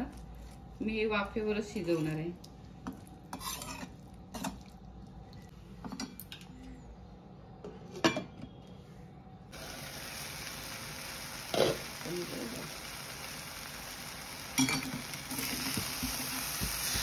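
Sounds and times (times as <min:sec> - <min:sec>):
food sizzling under lid: 0:09.6 - 0:17.0.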